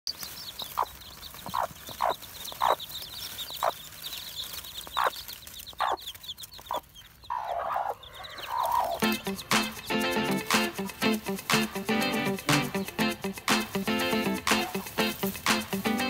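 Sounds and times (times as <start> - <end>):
chicks peeping: 0.1 - 16.0
hen clucking: 0.1 - 16.0.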